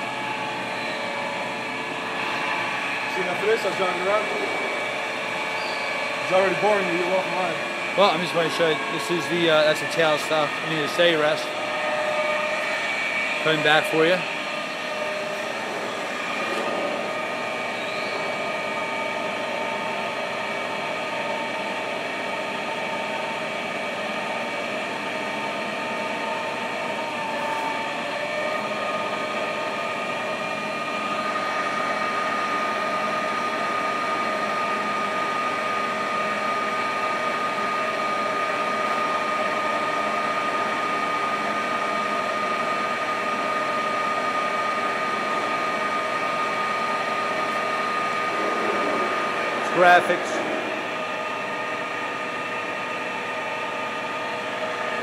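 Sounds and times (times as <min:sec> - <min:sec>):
high steady whine: 0:00.0 - 0:21.8, 0:44.4 - 0:55.0
lathe mechanical hum: 0:00.0 - 0:55.0.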